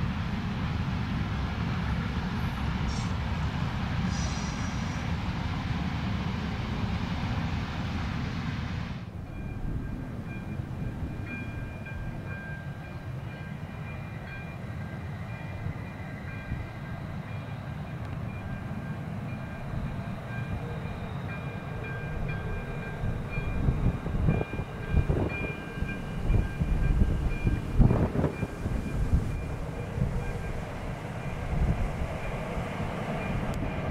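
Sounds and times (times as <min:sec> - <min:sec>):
electric locomotive whine: 0:00.0 - 0:33.9
freight train rumbling past: 0:00.0 - 0:33.9.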